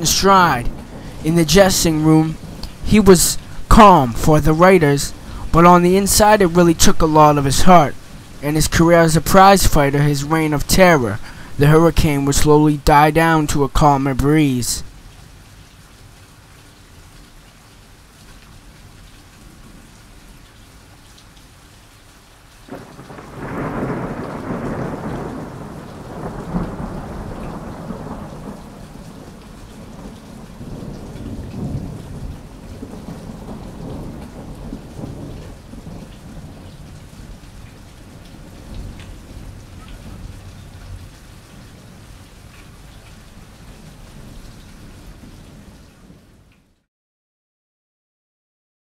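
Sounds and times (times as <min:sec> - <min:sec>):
film soundtrack hiss: 0:00.0 - 0:25.3.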